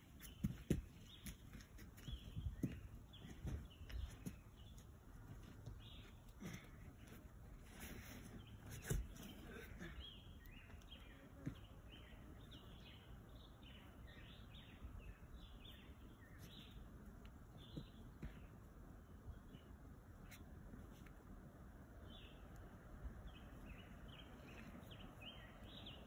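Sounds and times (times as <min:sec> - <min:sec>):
bird chirping: 0:00.0 - 0:07.2, 0:07.9 - 0:16.8, 0:22.0 - 0:26.0.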